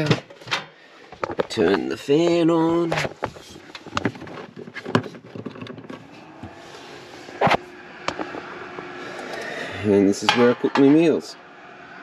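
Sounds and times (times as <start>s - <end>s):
exhaust fan motor hum: 0.0s - 12.0s
handling clicks and knocks: 2.7s - 6.1s.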